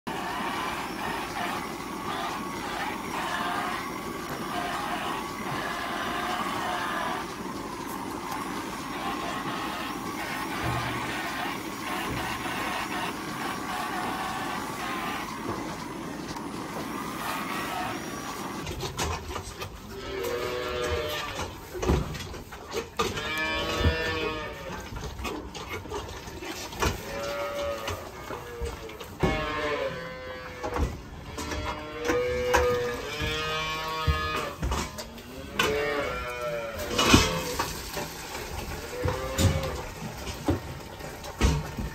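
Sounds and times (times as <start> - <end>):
calves mooing: 0.1 - 15.3, 19.9 - 21.9, 23.0 - 25.1, 26.8 - 37.8, 38.6 - 40.0
steady machine hum: 0.1 - 19.0.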